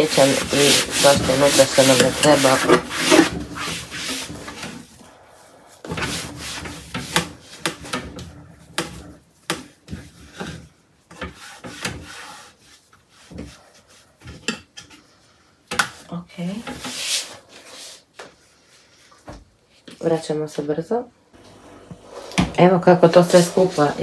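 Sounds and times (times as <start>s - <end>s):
cloth rubbing in a wooden drawer: 0.0s - 8.4s, 22.9s - 24.0s.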